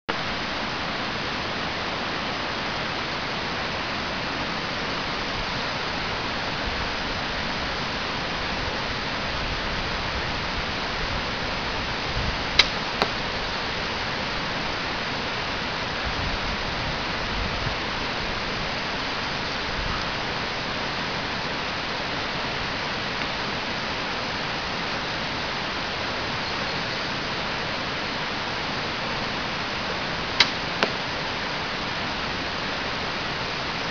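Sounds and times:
sharp clicks: 12.6 - 13.1.

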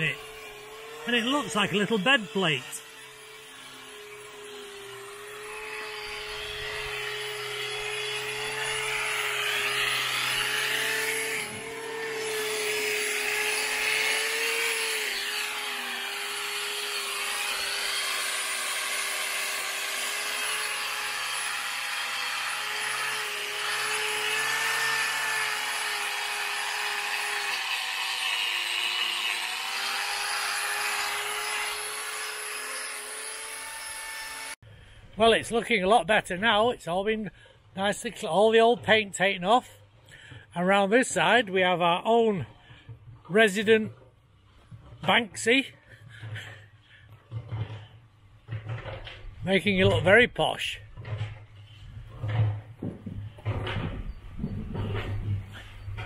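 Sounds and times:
angle grinder motor whine: 0.0 - 34.6.

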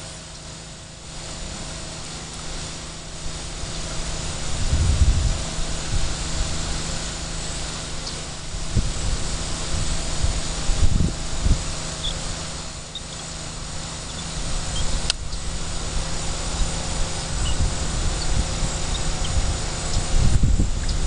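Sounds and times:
wind buffeting microphone: 3.2 - 7.0, 8.3 - 12.8, 13.7 - 21.0
sharp click: 15.0 - 15.2.

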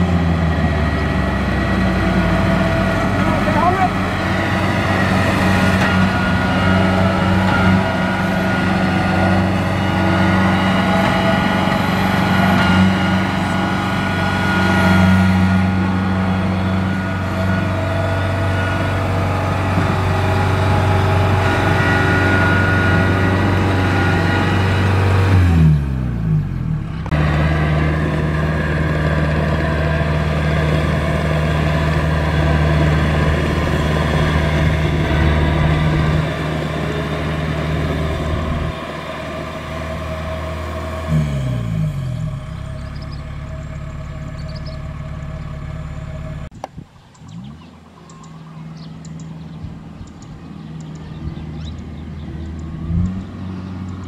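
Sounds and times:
combine harvester diesel engine: 0.0 - 54.0
threshing machinery: 0.4 - 25.9.

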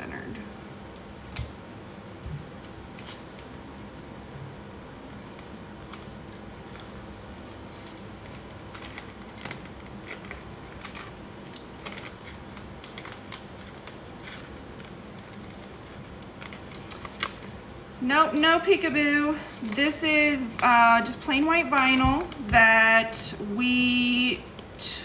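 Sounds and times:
low room hum: 0.0 - 25.0
plastic film crinkling: 4.9 - 23.2.

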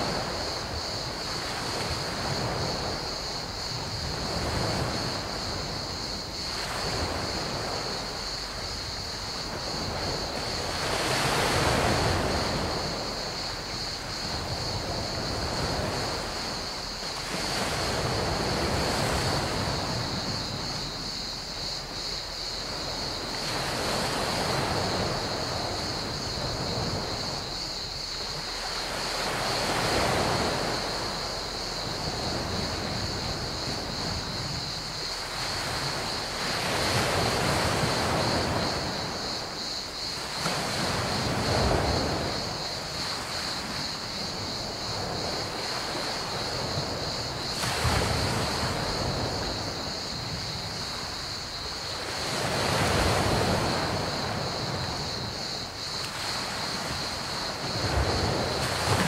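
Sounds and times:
crickets chirring: 0.0 - 59.0
waves washing onto pebble beach: 0.0 - 59.0.

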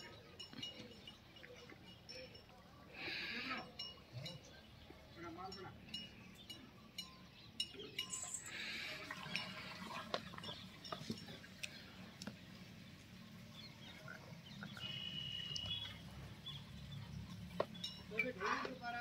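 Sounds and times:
bulls' horns knocking: 17.3 - 19.0.

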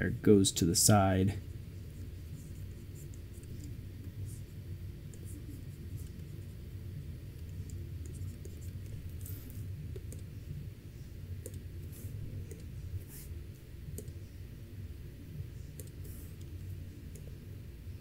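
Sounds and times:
steady low hum: 0.0 - 18.0
scratchy mouse strokes: 1.4 - 6.6, 7.4 - 10.1, 11.8 - 13.4, 15.8 - 16.7
computer mouse clicks: 9.9 - 10.3, 11.4 - 11.6, 13.9 - 14.2, 15.7 - 17.3.

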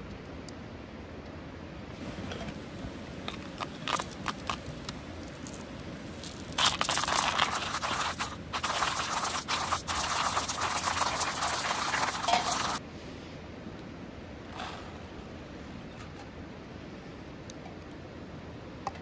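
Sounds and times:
coffee grinder crunching beans: 3.3 - 12.8.

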